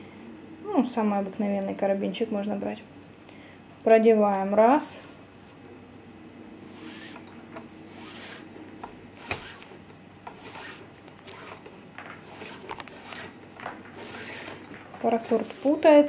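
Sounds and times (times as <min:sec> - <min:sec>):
cord rustling against hands: 0:09.2 - 0:16.0.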